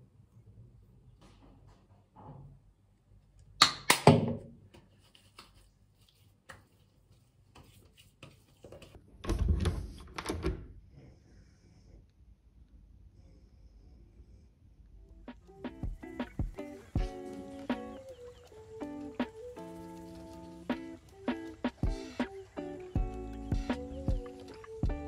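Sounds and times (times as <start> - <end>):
hands patting face: 15.3 - 25.0.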